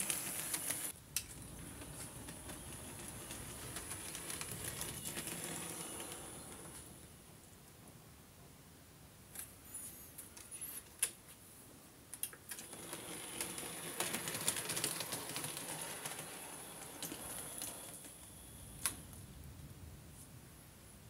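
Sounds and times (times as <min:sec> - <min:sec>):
model train wheels clattering: 0:00.0 - 0:07.0, 0:12.2 - 0:19.1.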